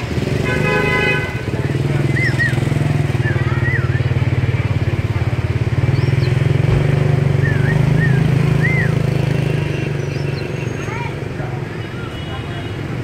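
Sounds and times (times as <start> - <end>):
songbird whistling: 2.0 - 4.3, 5.9 - 6.5, 7.3 - 9.2.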